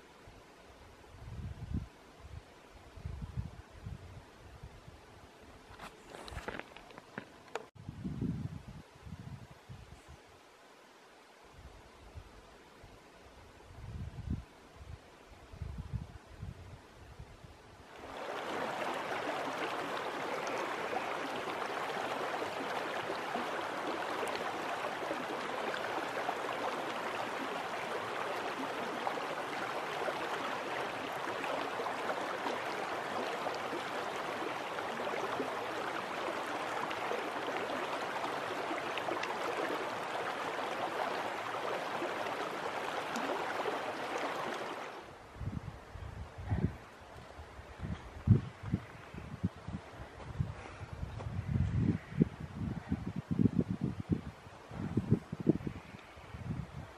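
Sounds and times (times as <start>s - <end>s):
creek water flowing: 17.8s - 45.4s.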